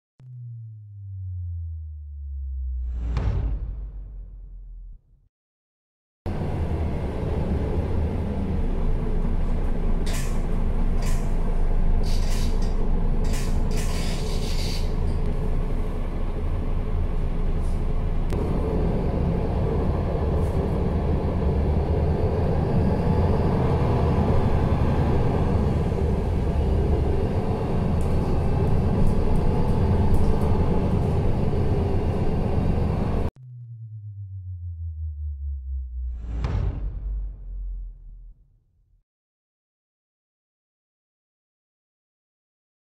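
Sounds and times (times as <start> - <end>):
bus engine running: 6.3 - 33.3.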